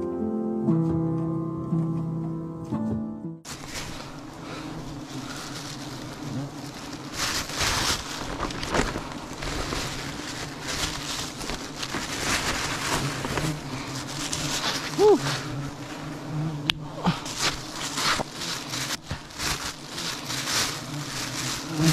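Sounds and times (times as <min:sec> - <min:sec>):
plastic bag crinkling: 0:03.5 - 0:16.1, 0:17.2 - 0:21.9
bees buzzing: 0:03.5 - 0:21.9.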